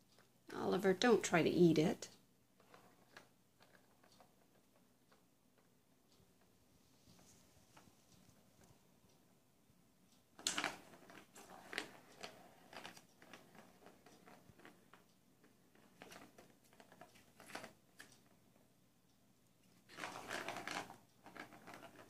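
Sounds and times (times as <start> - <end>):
plastic ball clicking in track: 10.4 - 18.4, 19.7 - 22.0.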